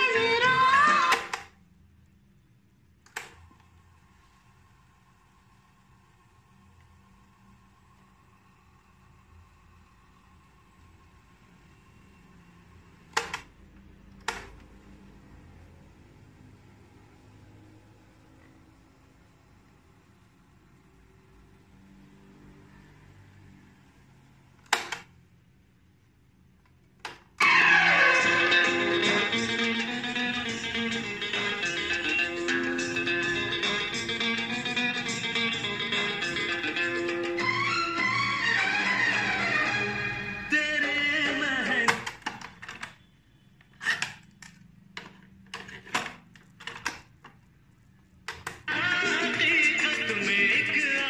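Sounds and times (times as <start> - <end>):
music through speakers: 0.0 - 1.1, 27.4 - 41.9, 48.7 - 51.0.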